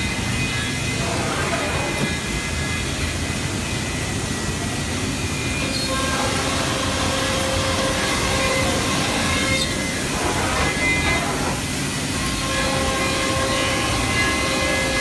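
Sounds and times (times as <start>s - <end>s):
steady machine whine: 0.0s - 15.0s
router spindle machine noise: 5.5s - 15.0s.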